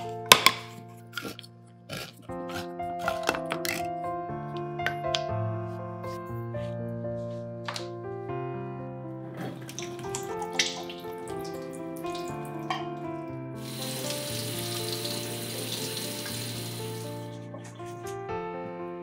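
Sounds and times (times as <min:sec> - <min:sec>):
background music: 0:00.0 - 0:19.0
kitchen tap running: 0:09.4 - 0:13.0, 0:13.6 - 0:17.8.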